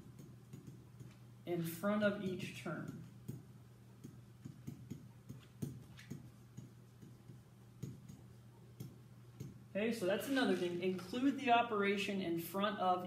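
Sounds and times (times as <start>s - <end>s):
pen tapping on whiteboard: 0.0s - 1.2s, 2.8s - 9.6s.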